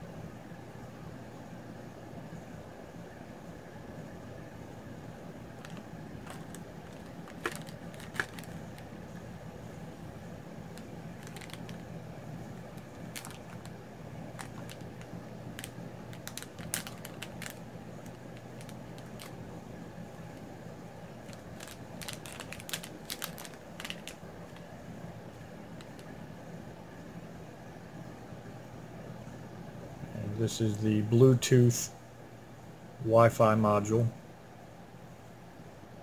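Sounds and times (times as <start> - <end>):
steady low hum: 0.0 - 36.0
plastic bag crinkling: 5.6 - 9.3, 10.7 - 19.4, 21.2 - 24.7, 25.7 - 26.1.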